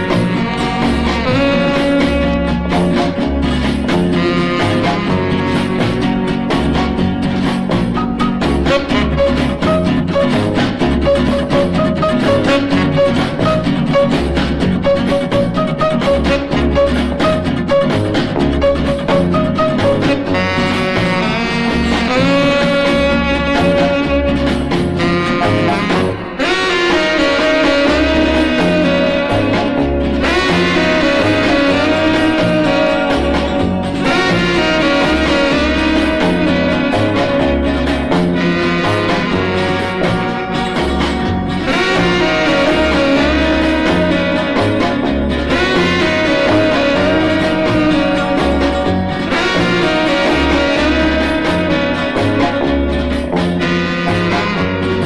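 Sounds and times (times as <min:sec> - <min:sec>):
old pop record playing: 0:00.0 - 0:55.0
stepping bass line: 0:00.0 - 0:55.0.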